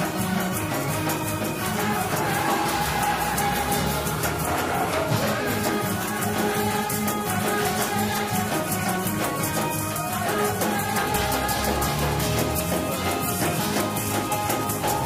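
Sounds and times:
fast percussion beat: 0:00.0 - 0:15.0
organ and keyboard chords: 0:00.0 - 0:15.0.

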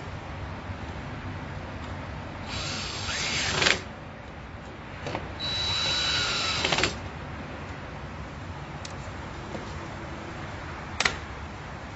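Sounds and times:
cordless drill whining: 0:02.5 - 0:03.8, 0:05.4 - 0:07.0.

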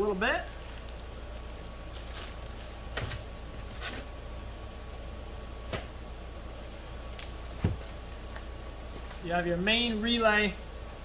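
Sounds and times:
steady low hum: 0:00.0 - 0:11.0
plastic bag rustling: 0:00.4 - 0:04.1.

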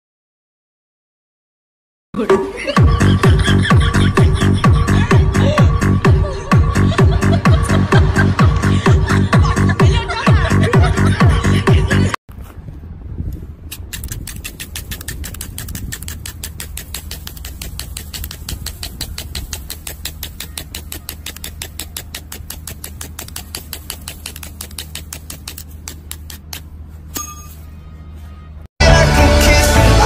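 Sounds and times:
knife scraping along a rod: 0:13.7 - 0:27.3.

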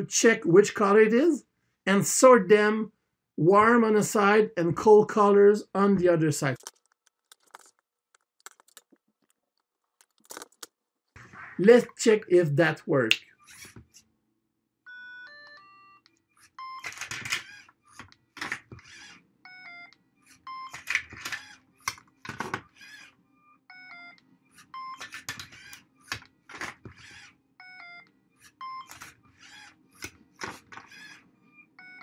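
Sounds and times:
plastic cubes dropped: 0:06.6 - 0:09.4, 0:10.0 - 0:10.7.

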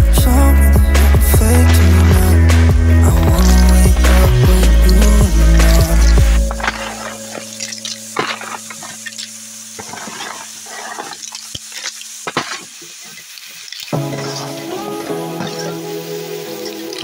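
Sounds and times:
music: 0:00.0 - 0:09.4, 0:14.0 - 0:17.0
light sizzle: 0:00.0 - 0:17.0
snail shells clattering in pan: 0:06.5 - 0:14.4.

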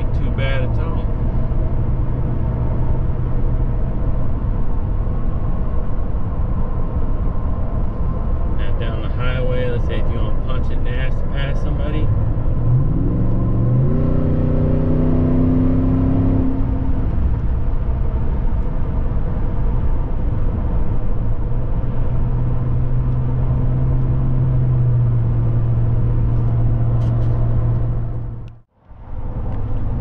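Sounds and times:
car engine drone: 0:00.0 - 0:30.0
road noise: 0:00.0 - 0:30.0.

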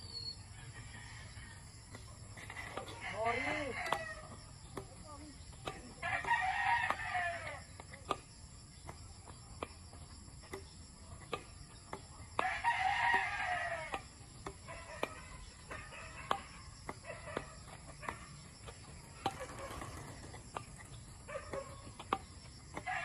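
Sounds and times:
rooster crowing: 0:00.5 - 0:01.9, 0:02.9 - 0:04.4, 0:06.0 - 0:07.7, 0:12.4 - 0:14.1, 0:22.8 - 0:23.0
badminton rackets hitting shuttlecock: 0:01.8 - 0:23.0.

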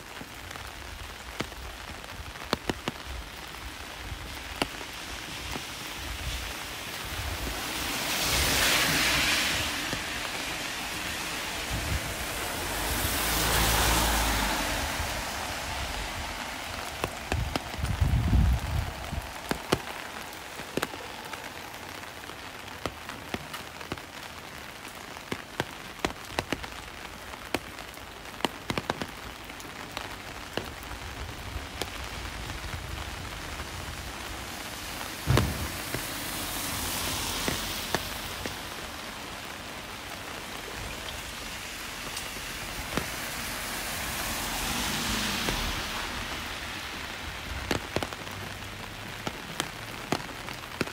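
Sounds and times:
raindrops clicking on microphone: 0:00.0 - 0:50.9
steady rain: 0:00.0 - 0:50.9
low thumps: 0:35.3 - 0:36.1.

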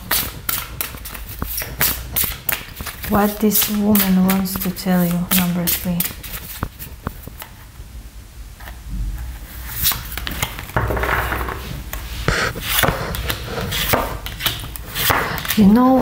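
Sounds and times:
cards shuffling: 0:00.0 - 0:07.6.

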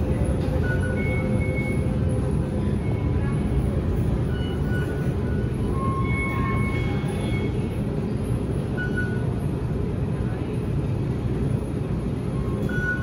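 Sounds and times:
train rumbling slowly: 0:00.0 - 0:13.0
faint high squeals: 0:04.2 - 0:07.8.

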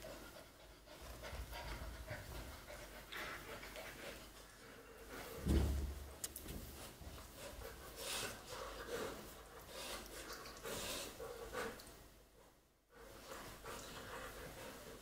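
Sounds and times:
low thump: 0:05.4 - 0:06.0.

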